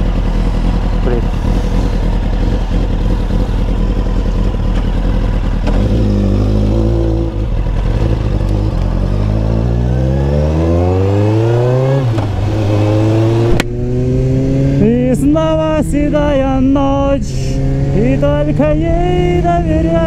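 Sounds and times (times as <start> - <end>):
motorcycle engine accelerating: 0.0 - 20.0.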